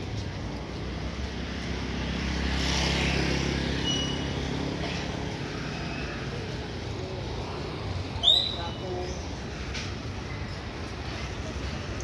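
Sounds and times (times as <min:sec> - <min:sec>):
street traffic: 0:00.0 - 0:12.0
motorcycle passing by: 0:00.1 - 0:08.2.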